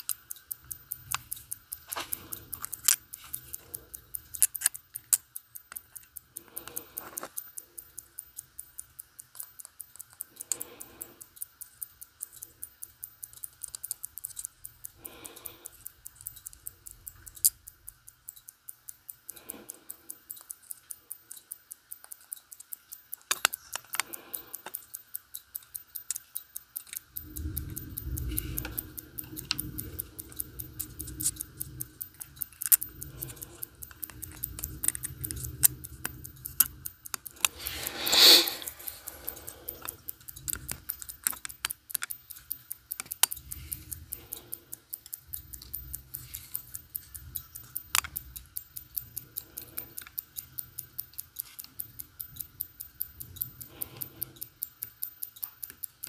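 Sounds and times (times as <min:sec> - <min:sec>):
watch ticking: 0:00.0 - 0:56.0
loud scrape: 0:37.6 - 0:39.2.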